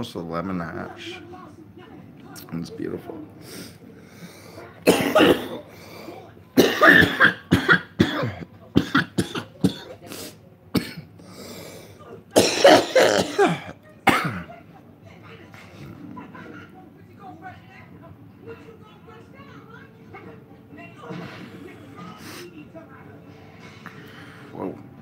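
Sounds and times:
man coughing hard: 0:04.8 - 0:05.6, 0:06.6 - 0:10.0, 0:10.7 - 0:11.1, 0:12.4 - 0:14.5
man clearing throat: 0:04.9 - 0:05.6, 0:12.4 - 0:14.5.

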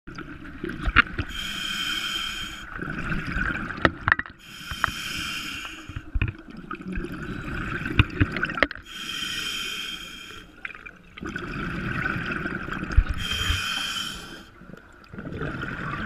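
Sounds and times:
exhaled bubbles gurgling: 0:00.1 - 0:09.7, 0:10.4 - 0:16.0
diver inhaling through regulator: 0:01.3 - 0:02.8, 0:04.4 - 0:06.1, 0:08.8 - 0:10.6, 0:13.1 - 0:14.6.

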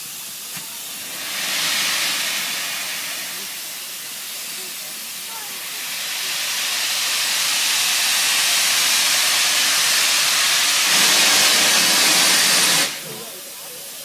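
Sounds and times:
steam locomotive hissing steam: 0:00.0 - 0:14.0.

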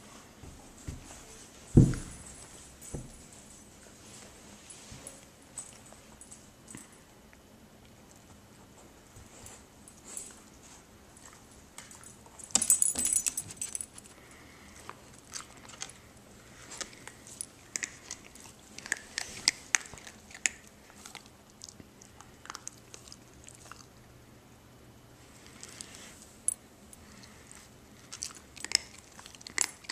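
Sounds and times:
puppy chewing dry kibble: 0:13.9 - 0:24.0, 0:27.1 - 0:29.9.

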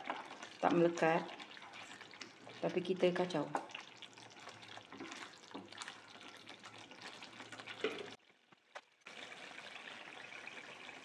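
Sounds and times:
wooden spatula scraping wok: 0:00.0 - 0:08.2
paste frying in oil: 0:00.0 - 0:11.0.

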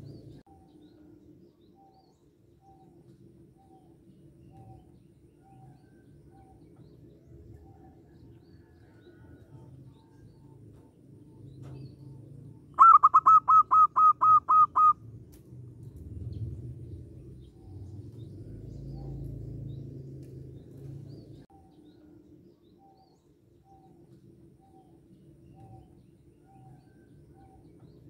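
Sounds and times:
bird chirping rapidly: 0:12.7 - 0:15.0
bird calling short notes: 0:12.8 - 0:15.0.

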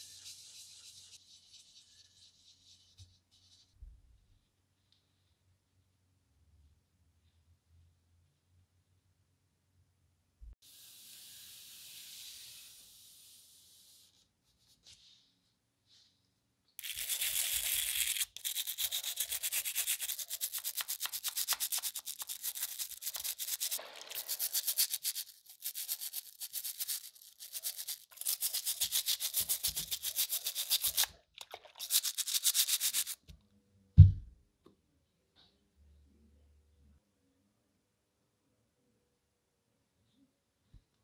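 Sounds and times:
bristle brush scrubbing metal: 0:16.8 - 0:33.2
loud thump: 0:34.0 - 0:34.3.

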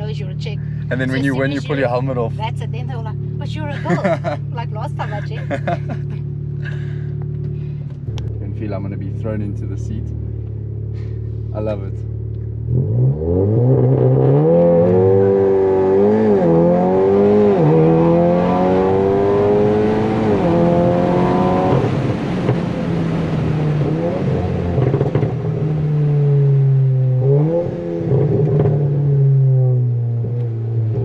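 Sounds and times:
car engine accelerating through gears: 0:04.0 - 0:31.0.

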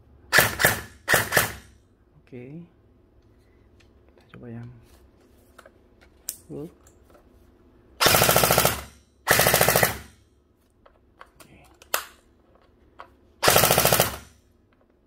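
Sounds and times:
toy blaster firing full auto: 0:00.3 - 0:01.7, 0:08.0 - 0:10.1, 0:13.4 - 0:14.3.

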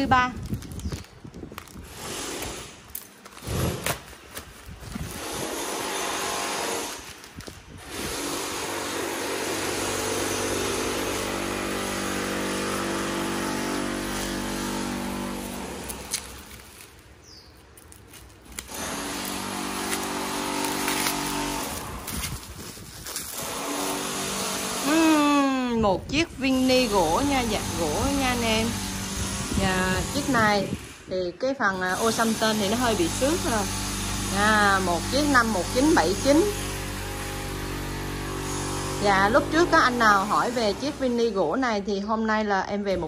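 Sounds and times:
bubble wrap crinkling: 0:00.0 - 0:08.9, 0:10.2 - 0:25.4
power tool droning: 0:05.0 - 0:07.2, 0:07.8 - 0:16.6, 0:18.6 - 0:22.4, 0:23.2 - 0:25.7, 0:26.4 - 0:31.0, 0:31.9 - 0:41.2
scissors snipping plastic: 0:15.4 - 0:17.1, 0:17.7 - 0:24.0.

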